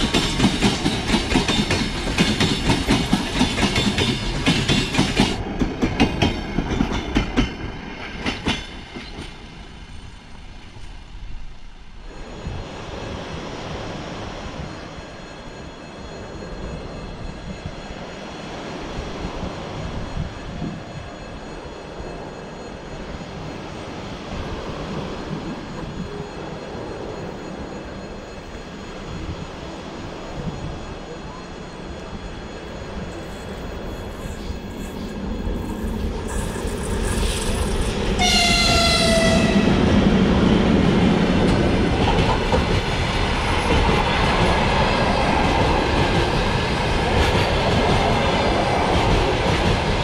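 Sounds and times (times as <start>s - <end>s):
train wheels clattering over rail joints: 0.0s - 9.5s
rushing outdoor background: 0.0s - 50.0s.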